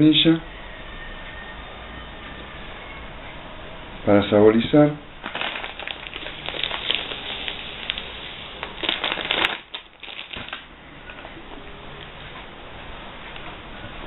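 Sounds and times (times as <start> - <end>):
plastic bag crinkling: 5.2 - 11.2.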